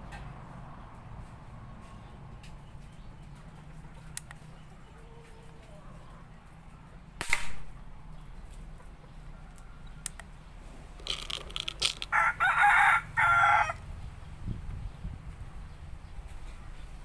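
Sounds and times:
air gun shot: 7.2s - 7.8s
rooster crowing: 12.1s - 13.8s.

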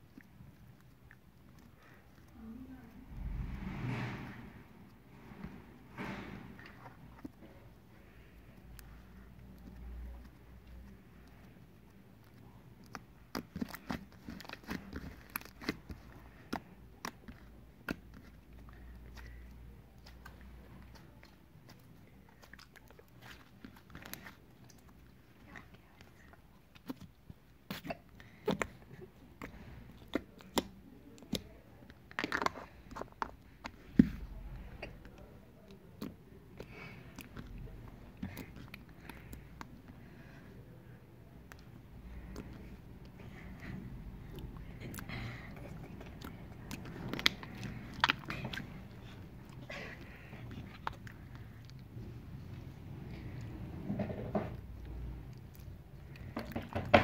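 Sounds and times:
slime crackly stretch: 8.1s - 40.0s.

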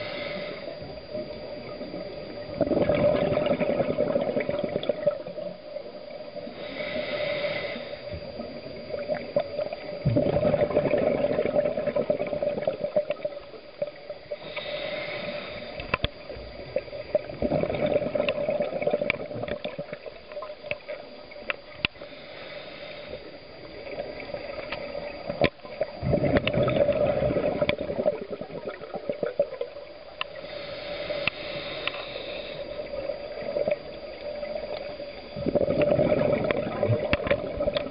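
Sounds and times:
diver inhaling through regulator: 0.0s - 0.9s, 6.4s - 8.4s, 14.3s - 16.0s, 22.0s - 23.5s, 30.3s - 33.6s
exhaled bubbles rushing: 1.8s - 5.4s, 8.6s - 13.4s, 16.6s - 20.2s, 23.8s - 29.9s, 32.9s - 37.9s.

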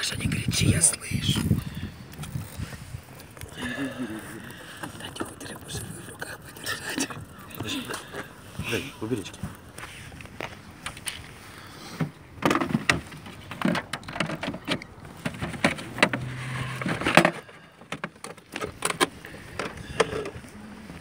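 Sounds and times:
phone handling clicks and rustles: 9.5s - 11.4s, 12.0s - 20.5s.

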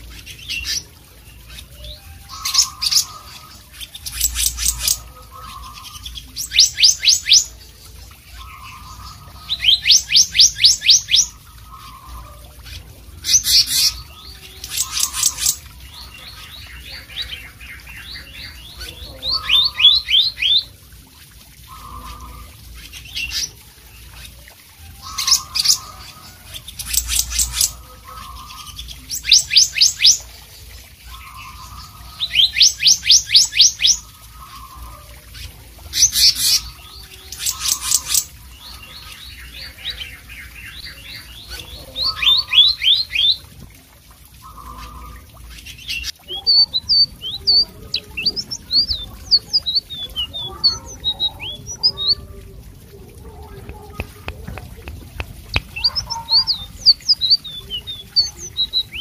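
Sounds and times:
bird trilling song: 8.4s - 12.2s, 13.2s - 20.7s, 35.9s - 43.4s, 44.4s - 52.3s, 55.3s - 59.0s.

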